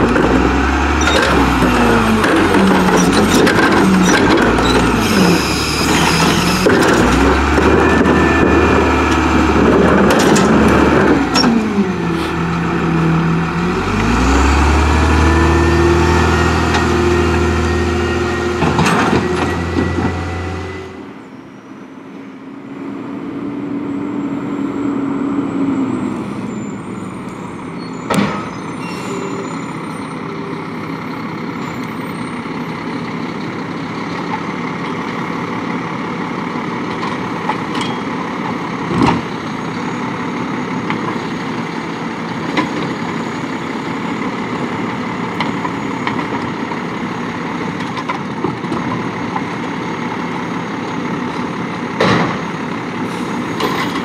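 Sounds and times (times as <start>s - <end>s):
carts and metal knocking: 0.0s - 11.8s, 18.2s - 20.4s
distant garbage truck engine: 0.0s - 54.0s
garbage truck diesel engine: 0.0s - 54.0s.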